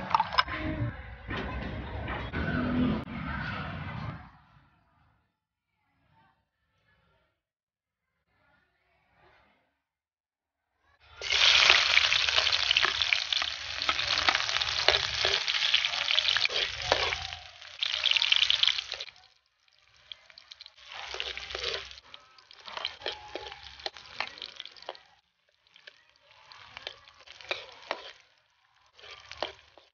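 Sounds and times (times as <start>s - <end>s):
onion sizzling in hot oil: 11.2s - 29.9s
metal spatula scraping pan: 11.9s - 19.2s, 20.3s - 24.9s, 29.0s - 29.9s.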